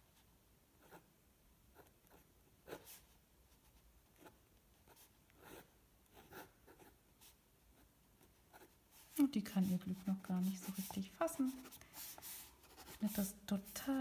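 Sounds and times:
pen scratching on paper: 1.7 - 3.1, 4.2 - 14.0.

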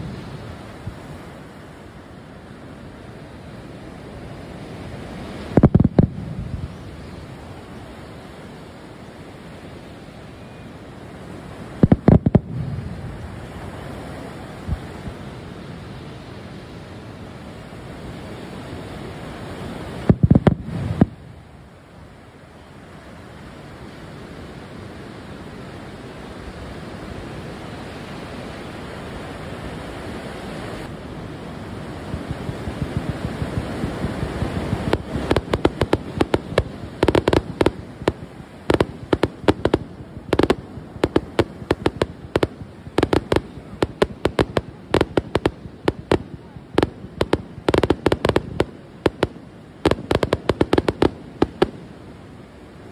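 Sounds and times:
surf noise: 0.0 - 52.9
firework bangs: 5.5 - 6.6, 11.7 - 13.2, 20.0 - 21.2, 32.4 - 52.0.

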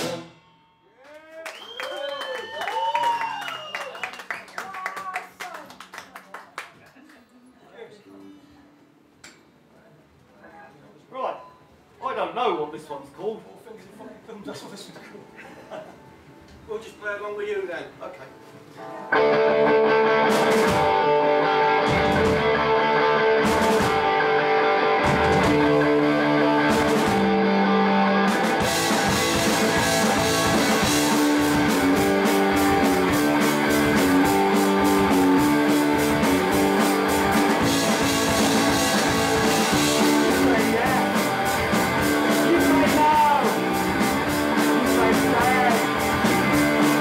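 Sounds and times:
punk rock band playing: 0.0 - 0.5, 19.1 - 47.0
electric guitar hits: 19.2 - 47.0.

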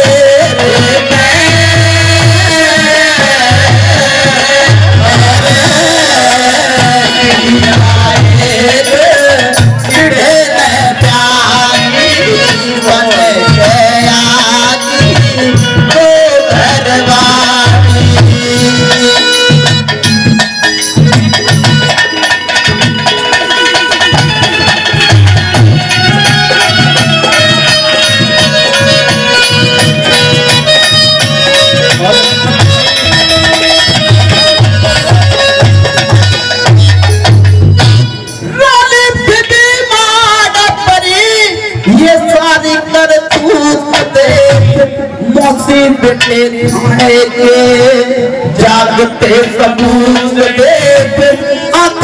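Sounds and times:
hand drum beating: 0.0 - 39.4
held melody line: 0.0 - 52.0
rattling percussion: 0.0 - 52.0
wavering melody line: 20.6 - 38.6.

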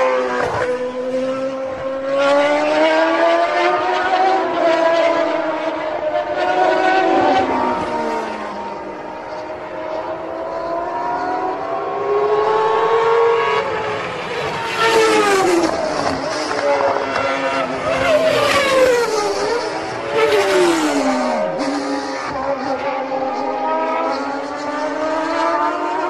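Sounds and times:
racing car engines passing: 0.0 - 26.0.

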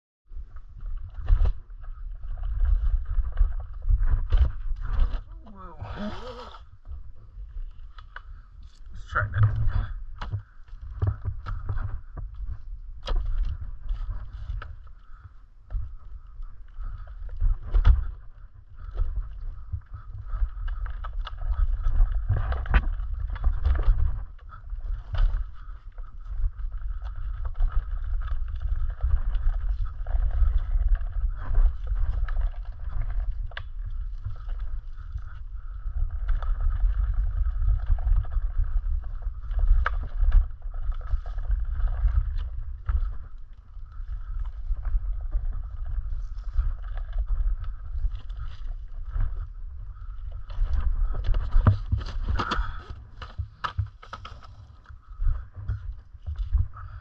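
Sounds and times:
wind rumble on microphone: 0.3 - 57.0
tyre rolling over dirt: 16.8 - 57.0.

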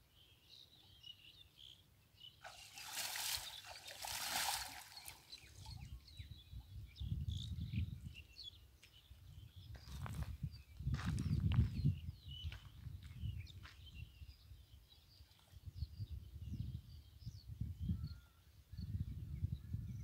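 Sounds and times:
small birds chirping: 0.0 - 19.8
water sloshing and splashing: 2.4 - 5.8.

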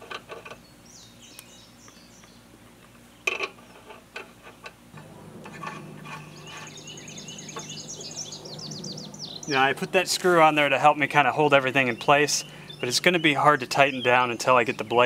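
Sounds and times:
birds chirping: 0.6 - 3.9, 5.0 - 15.0
steady low hum: 4.8 - 15.0.

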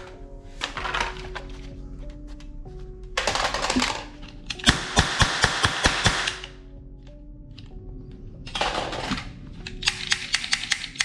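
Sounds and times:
soft background music: 0.0 - 11.0
toy guns clicking and popping: 9.7 - 11.0.

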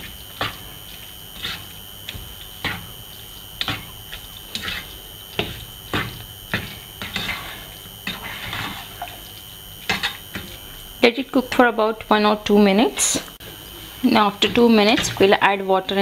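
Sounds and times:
spatula scraping frying pan: 0.3 - 3.0, 3.6 - 10.8, 14.3 - 16.0.

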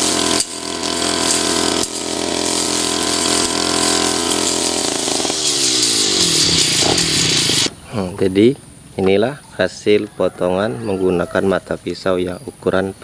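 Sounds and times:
brush cutter cutting grass: 0.0 - 7.8.

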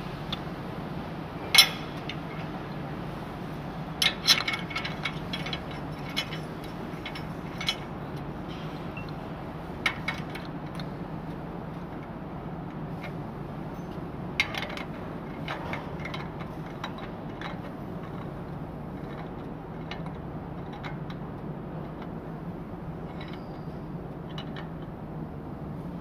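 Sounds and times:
metal clinks and clanks: 4.0 - 9.1, 23.0 - 23.7.

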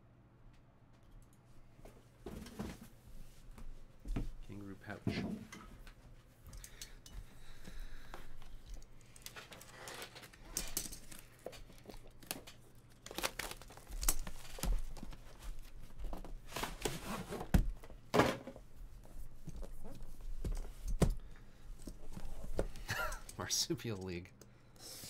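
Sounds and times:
plastic wrap crinkling and tearing: 9.2 - 15.9.

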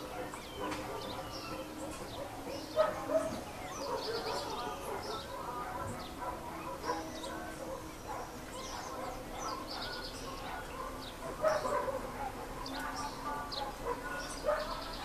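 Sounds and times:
lower wavering bird calls: 0.0 - 15.0
songbirds chirping: 0.0 - 15.0.

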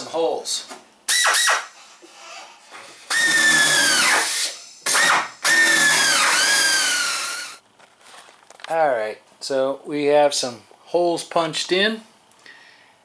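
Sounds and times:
pneumatic drill boring wood: 1.1 - 7.6.

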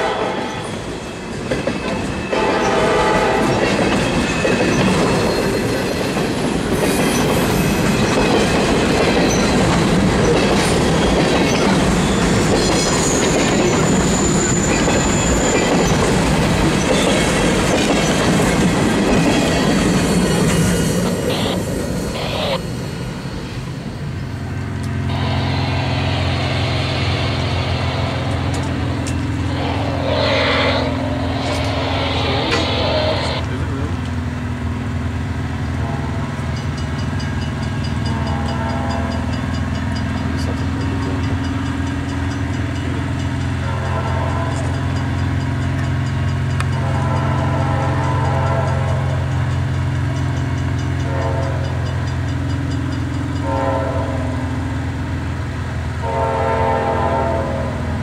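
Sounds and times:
high wheel squeal: 0.0 - 8.2, 11.8 - 17.4, 19.1 - 22.9, 23.9 - 33.8
train wheels clattering on rails: 0.0 - 22.6, 24.7 - 33.1, 36.4 - 56.0.

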